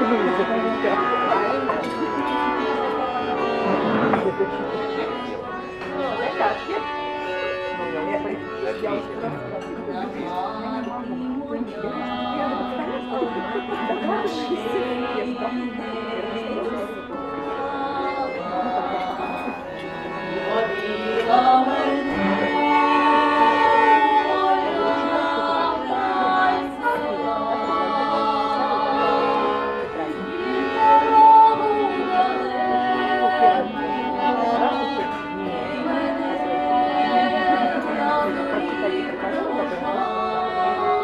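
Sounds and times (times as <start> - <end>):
accordion: 0.0 - 41.0
women singing folk song: 9.9 - 12.8, 13.7 - 19.6, 20.5 - 41.0.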